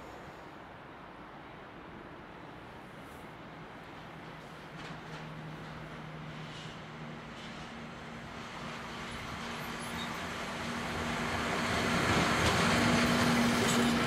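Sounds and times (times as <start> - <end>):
train wheels rumbling on rails: 3.7 - 14.0
locomotive hum: 8.6 - 14.0.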